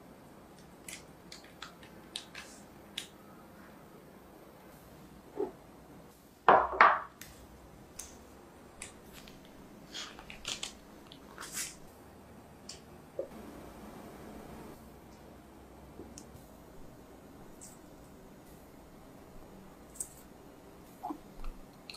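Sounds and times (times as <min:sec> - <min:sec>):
parchment paper crinkling: 0:08.8 - 0:11.8.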